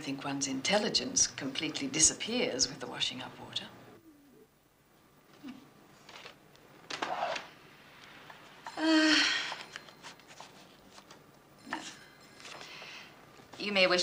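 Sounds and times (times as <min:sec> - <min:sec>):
soft rustle: 0:09.4 - 0:14.0.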